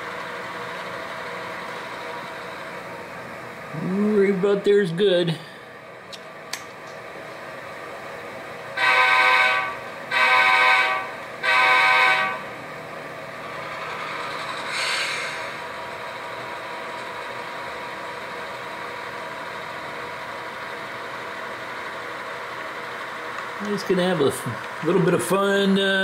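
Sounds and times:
locomotive engine running: 0.0s - 26.0s
model locomotive horn blasts: 8.8s - 12.5s
brief hiss: 14.7s - 15.6s.

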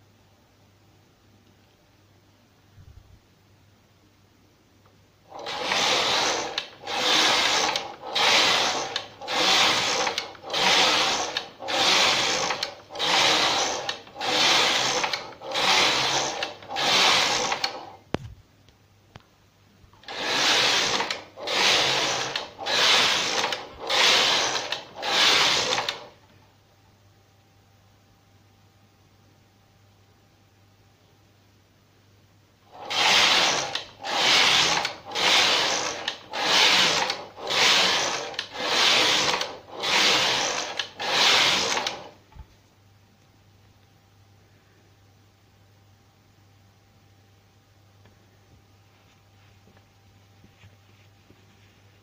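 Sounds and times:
knitting machine carriage clattering: 5.4s - 17.9s.

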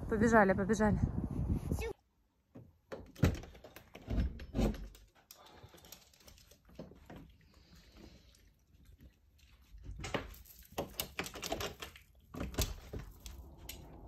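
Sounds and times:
dog claws clicking on floor: 10.0s - 13.9s.

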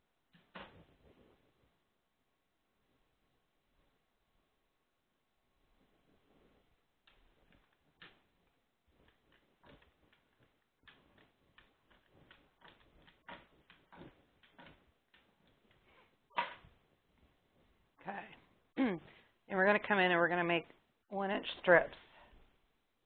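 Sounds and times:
rolling pin clicking on dough: 7.1s - 16.8s.

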